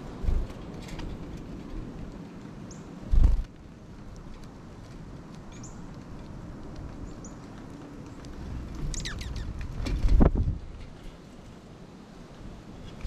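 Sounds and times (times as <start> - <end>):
wind rumbling on microphone: 0.0 - 13.0
small birds chirping: 2.6 - 3.0, 5.4 - 6.0, 6.9 - 9.8.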